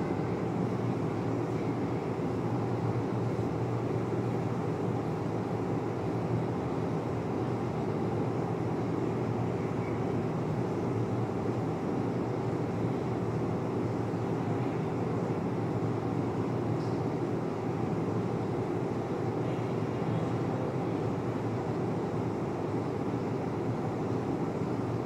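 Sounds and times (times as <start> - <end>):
low rumbling background noise: 0.0 - 25.0.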